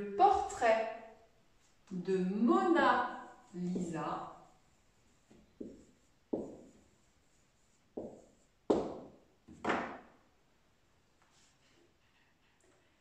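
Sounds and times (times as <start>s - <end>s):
marker knocking on whiteboard: 5.6s - 6.8s, 8.0s - 10.1s.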